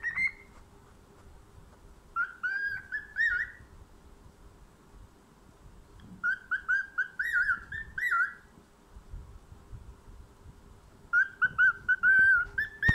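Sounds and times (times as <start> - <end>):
cockatiel whistling: 0.0 - 0.5, 2.2 - 3.6, 6.2 - 8.4, 11.1 - 12.9.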